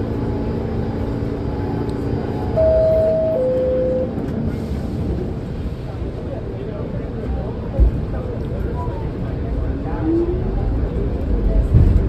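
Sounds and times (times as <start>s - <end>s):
subway car rumble: 0.0s - 12.0s
two-note descending chime: 2.6s - 4.1s.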